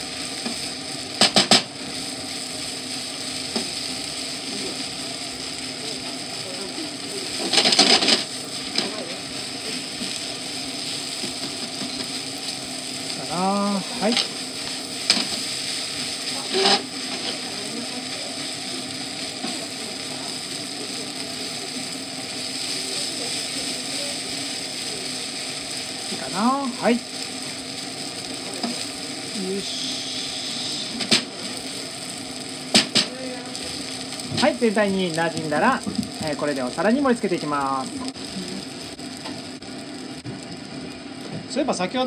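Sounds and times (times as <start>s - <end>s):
food sizzling in a pan: 0.0s - 42.0s
spatula scraping frying pan: 16.2s - 17.5s.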